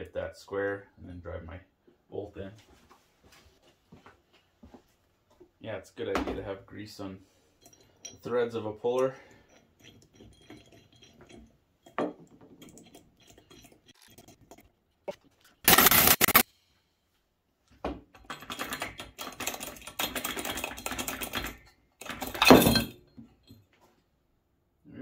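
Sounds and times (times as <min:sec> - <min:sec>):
impact driver hammering: 0:15.7 - 0:16.4
tools clicking on metal: 0:15.7 - 0:16.4, 0:18.2 - 0:22.8.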